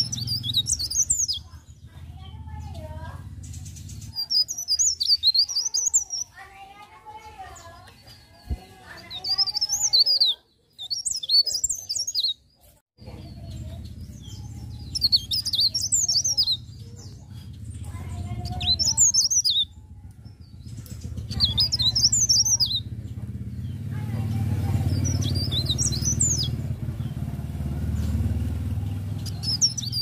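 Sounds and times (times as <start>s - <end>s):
warbler twittering song: 0.0s - 30.0s
steady low rumble: 13.0s - 30.0s.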